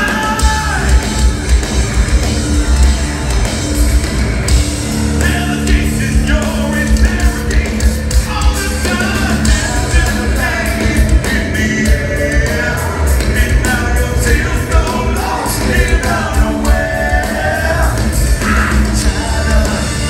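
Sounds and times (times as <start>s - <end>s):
man singing: 0.0s - 1.3s, 5.2s - 20.0s
fast drum and cymbal strokes: 0.0s - 20.0s
metal band playing: 0.0s - 20.0s.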